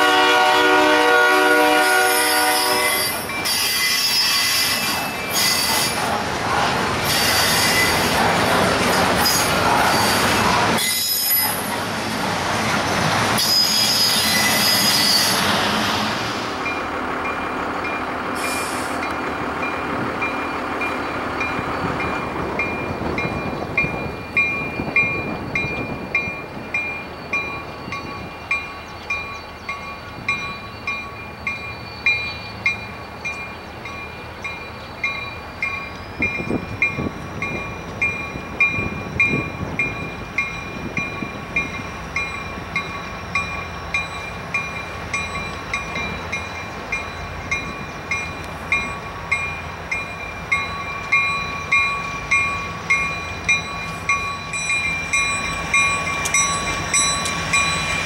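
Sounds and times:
train rumbling: 0.0s - 58.0s
bell ringing: 21.4s - 58.0s.

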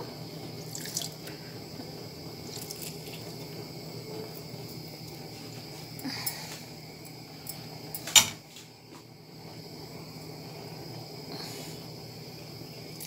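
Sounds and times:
fruit and sugar bubbling in pot: 0.0s - 13.0s
liquid dripping: 0.6s - 1.4s, 2.4s - 3.5s.

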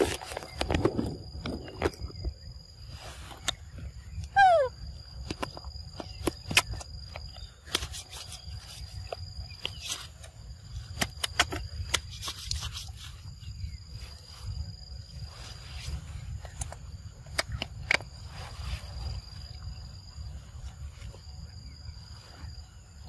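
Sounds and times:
monkey falling call: 4.3s - 4.8s.

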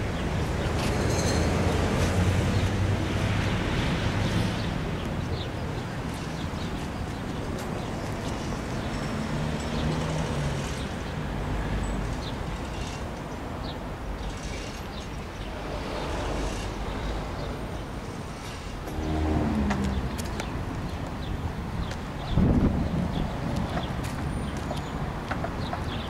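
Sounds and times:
vehicle passing: 18.9s - 20.7s.

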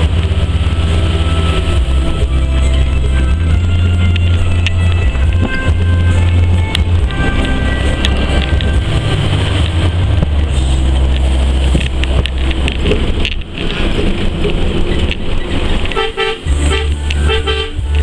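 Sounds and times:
bus engine and road noise: 0.0s - 18.0s
vehicle horn honks: 15.9s - 18.0s.

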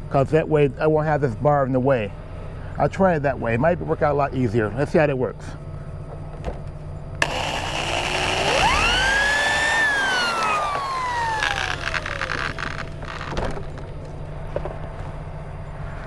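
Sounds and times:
electric drill motor whine: 7.2s - 13.8s.

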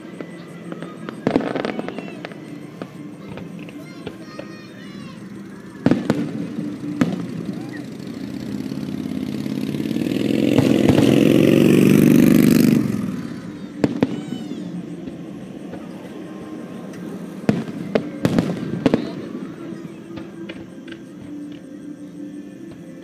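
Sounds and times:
fireworks bangs: 0.0s - 21.9s
vehicle engine passing: 5.2s - 19.8s.

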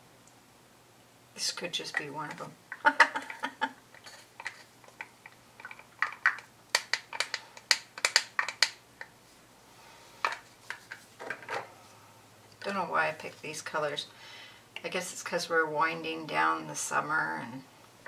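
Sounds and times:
stick scraping plastic cup: 4.0s - 8.7s.

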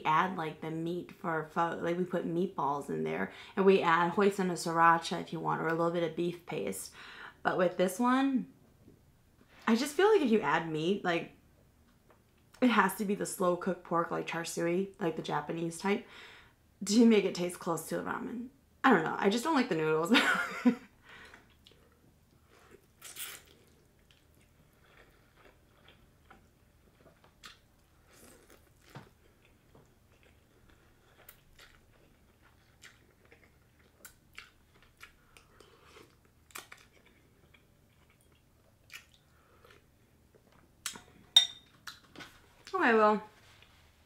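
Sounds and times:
person chewing and slurping noodles: 22.4s - 39.9s.

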